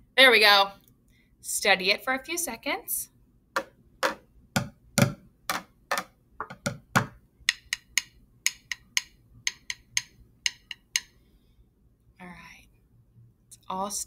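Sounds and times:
drumsticks striking bucket: 0:03.6 - 0:11.1.

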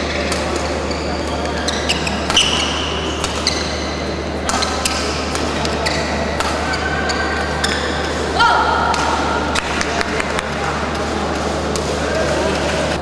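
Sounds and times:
shoes squeaking on court: 0:00.0 - 0:08.3
steady hall hum: 0:00.0 - 0:13.0
racket striking shuttlecock: 0:00.1 - 0:12.0.

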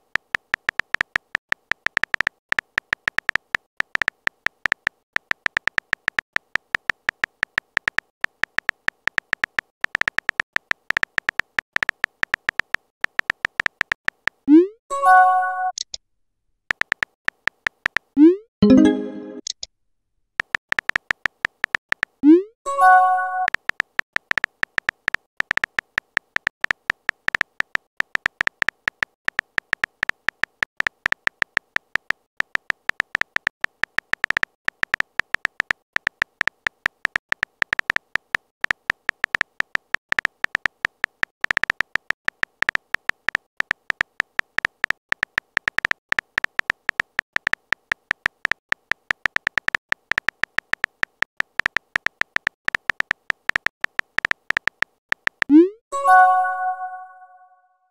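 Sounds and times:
keyboard tap clicks: 0:00.2 - 0:14.4, 0:16.7 - 0:19.6, 0:20.4 - 0:22.2, 0:23.3 - 0:55.6
short chime: 0:55.9 - 0:57.6.

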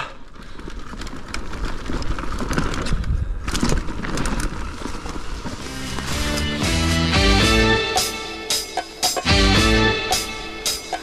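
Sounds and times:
bike tyres rolling on dirt: 0:00.0 - 0:07.0
bike knocks and rattles: 0:00.3 - 0:06.3
music: 0:05.7 - 0:11.0.

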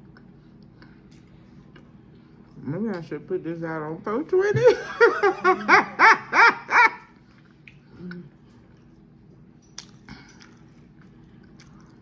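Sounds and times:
person chewing food: 0:09.7 - 0:12.0.

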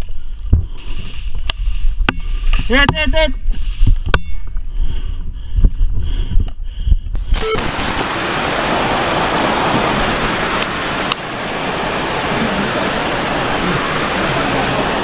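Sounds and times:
loud rushing noise: 0:07.6 - 0:15.0.

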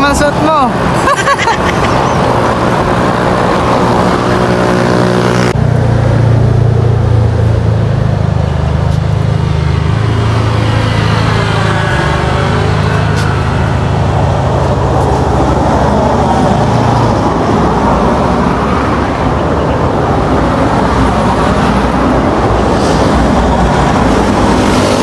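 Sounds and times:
vehicles driving past: 0:00.0 - 0:25.0.

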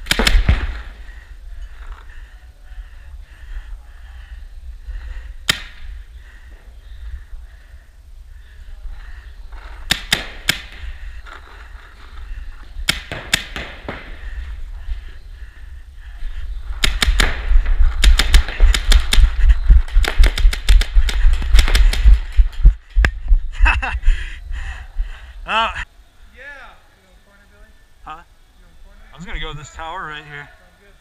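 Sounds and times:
paintball markers firing pops: 0:00.0 - 0:00.8, 0:05.4 - 0:05.8, 0:09.8 - 0:10.8, 0:12.8 - 0:14.2, 0:16.8 - 0:22.2
wind rumble on microphone: 0:14.0 - 0:25.5
microphone handling noise: 0:16.6 - 0:23.9.

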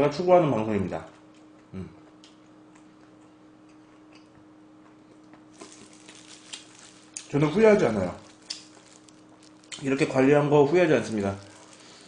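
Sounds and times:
faint electrical hum: 0:00.0 - 0:12.0
mouth chewing clicks and smacks: 0:08.2 - 0:09.9.

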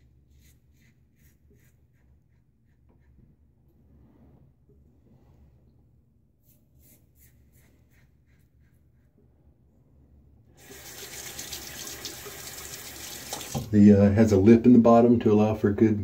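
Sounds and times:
water running from tap: 0:10.6 - 0:13.8.

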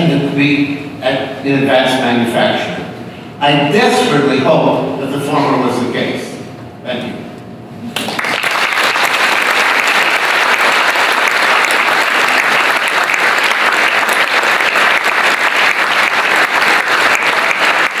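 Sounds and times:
large audience applauding: 0:08.0 - 0:18.0.

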